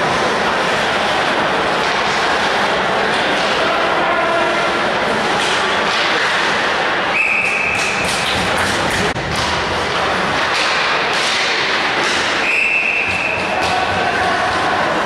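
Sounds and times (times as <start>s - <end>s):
ice rink noise: 0.0s - 15.0s
referee whistle: 7.1s - 7.9s, 12.4s - 13.5s
sticks puck and skates thudding: 7.4s - 15.0s.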